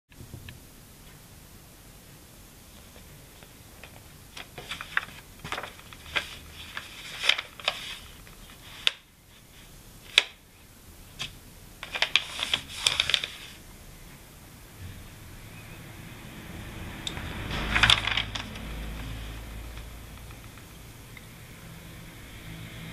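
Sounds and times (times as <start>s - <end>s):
paper notebook pages crackling: 2.7s - 10.4s, 11.1s - 13.6s, 17.2s - 20.9s.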